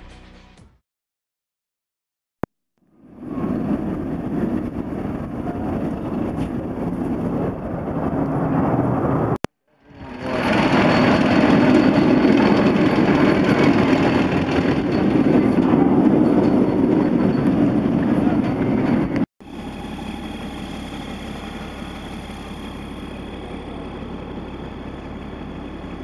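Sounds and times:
road noise: 2.9 - 26.0
vehicle engine: 2.9 - 26.0.

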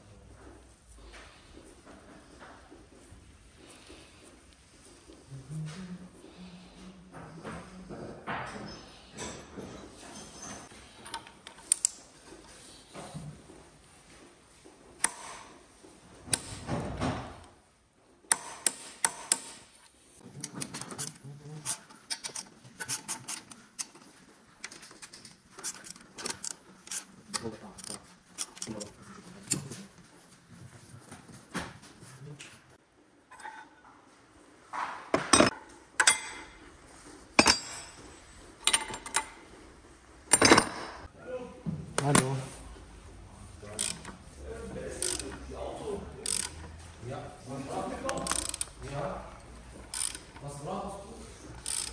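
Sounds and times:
hand tools clinking on metal: 35.3 - 36.6, 37.4 - 39.4
ratchet wrench clicking: 43.7 - 44.2, 45.0 - 45.4, 46.2 - 46.6, 48.1 - 48.8, 49.9 - 50.4, 51.6 - 51.9.

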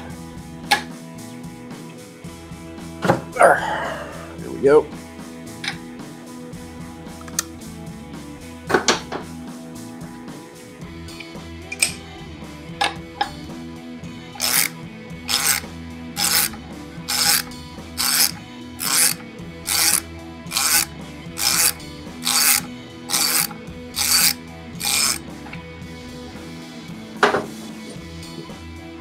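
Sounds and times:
ratchet wrench pawl rasping: 14.4 - 15.6, 16.2 - 25.3.

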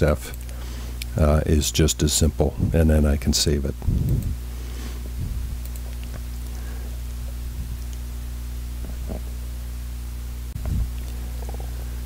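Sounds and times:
steady low multi-tone hum: 0.0 - 12.0.

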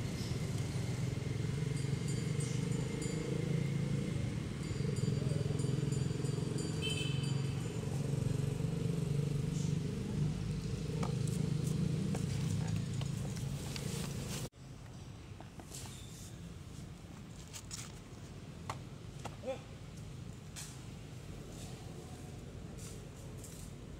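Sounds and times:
motor engine humming: 6.9 - 14.5.

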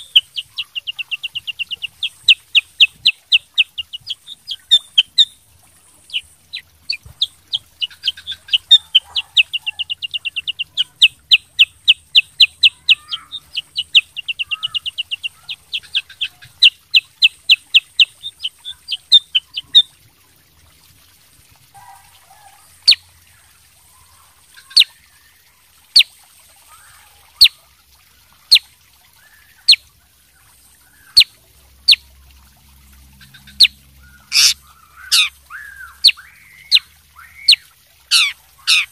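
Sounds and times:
bird chirping and trilling: 0.0 - 5.4, 6.0 - 19.8, 33.2 - 38.9.

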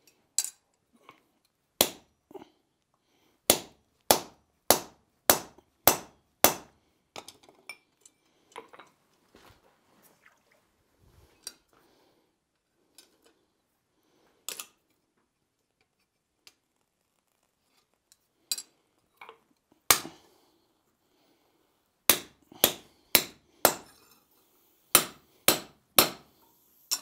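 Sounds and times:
hammer striking steel punch: 3.5 - 6.7, 22.1 - 23.9, 25.0 - 26.3
light metal clinks and taps: 7.2 - 9.0.

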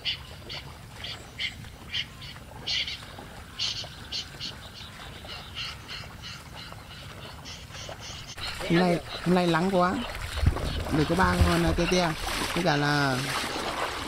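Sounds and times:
snipe calls: 3.6 - 12.2.

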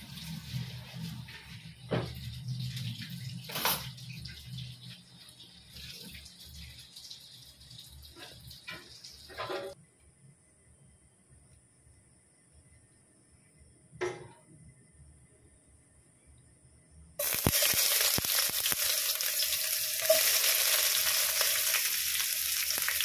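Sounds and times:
oil pouring into a pot: 17.2 - 23.0.

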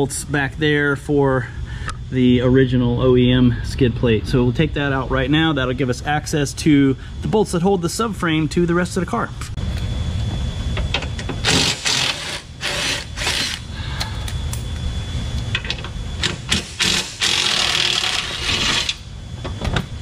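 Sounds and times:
cordless impact tool bursts: 11.4 - 13.7, 16.2 - 19.0.

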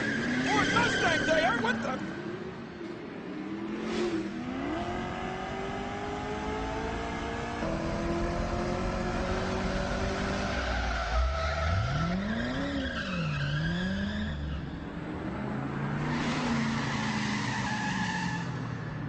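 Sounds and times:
car engine revving: 3.3 - 17.4.

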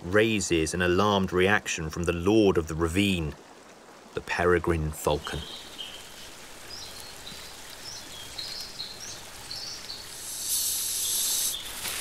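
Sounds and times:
loud hissing noise: 9.0 - 12.0.

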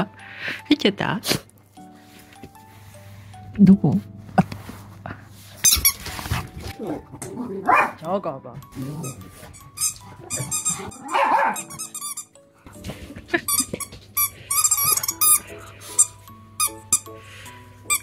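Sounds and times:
background music: 0.0 - 18.0
squeaky toy squeaks: 5.6 - 6.2, 9.0 - 12.4, 13.5 - 17.1
small dog barking: 7.7 - 8.0, 11.0 - 11.7.

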